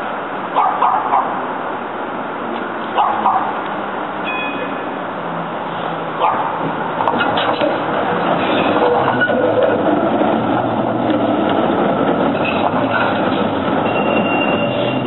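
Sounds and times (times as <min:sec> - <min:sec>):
tram wheels rumbling on rails: 0:00.0 - 0:15.0
high wheel squeal: 0:04.2 - 0:05.0, 0:07.1 - 0:15.0.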